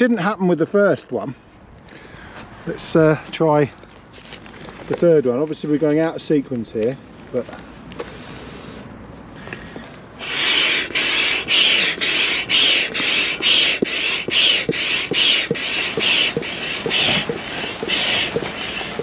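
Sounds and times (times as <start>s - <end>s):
rush of air: 8.0s - 19.0s
air pump strokes: 10.2s - 19.0s.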